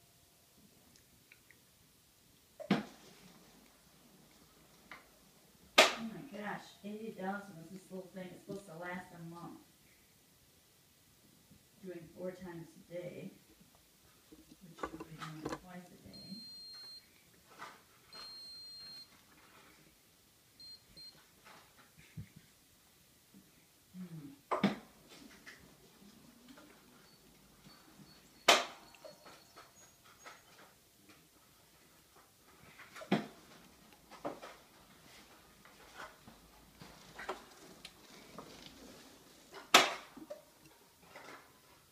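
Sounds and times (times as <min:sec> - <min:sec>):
faint rustling: 0:29.6 - 0:39.8.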